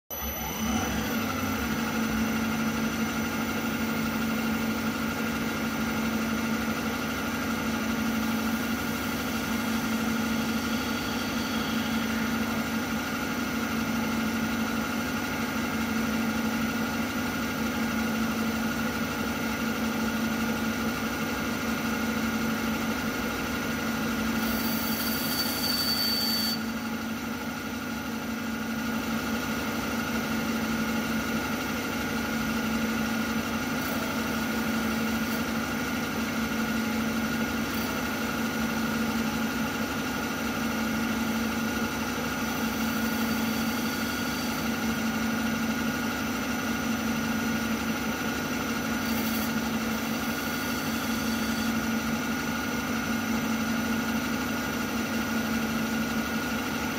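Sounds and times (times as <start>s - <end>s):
milling machine spindle humming: 0.1s - 15.9s, 23.5s - 53.0s.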